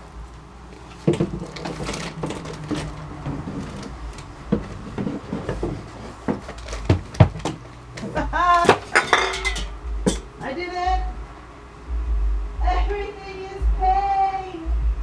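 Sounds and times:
wooden chair knocking on door frame: 1.0s - 8.9s.

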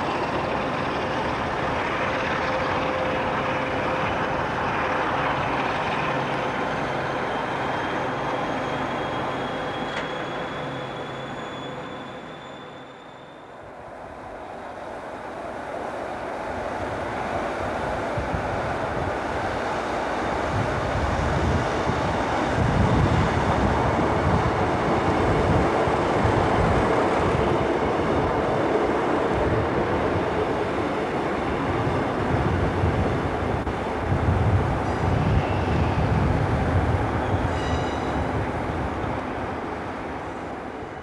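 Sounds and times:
diesel train rumbling past: 0.0s - 41.0s
high squeal: 6.8s - 13.6s, 37.2s - 38.3s.

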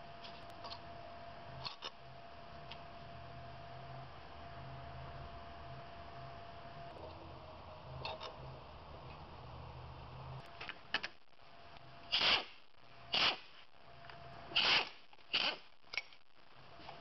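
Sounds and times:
screwdriver scraping rasps: 12.1s - 13.5s, 14.5s - 16.2s.

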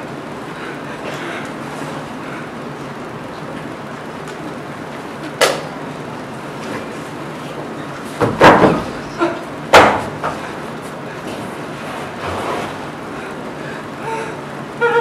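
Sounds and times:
knocks on wooden stage floor: 8.2s - 9.0s.

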